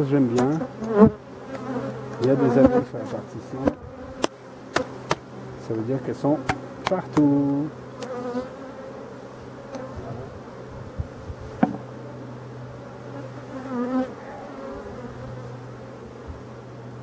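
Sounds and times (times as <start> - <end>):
honeybees humming: 0.0 - 17.0
sharp knock: 11.6 - 11.8.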